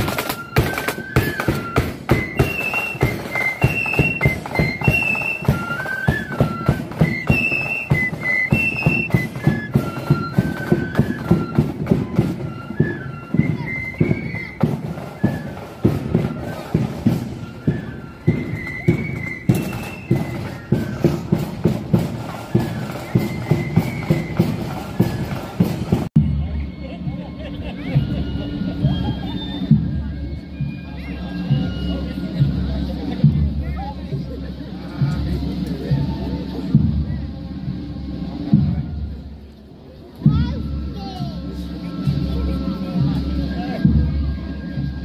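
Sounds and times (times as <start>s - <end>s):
snare and bass drums: 0.0s - 26.6s
flute melody: 0.0s - 45.0s.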